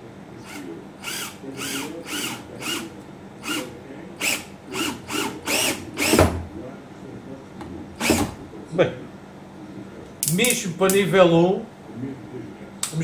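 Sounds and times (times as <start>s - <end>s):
cordless drill driving screw: 0.5s - 3.6s, 4.2s - 6.2s.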